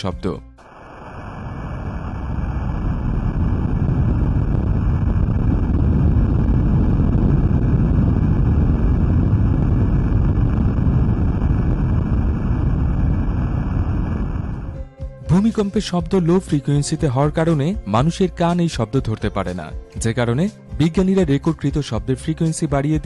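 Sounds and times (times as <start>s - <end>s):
deep earthquake rumble: 0.6s - 15.4s.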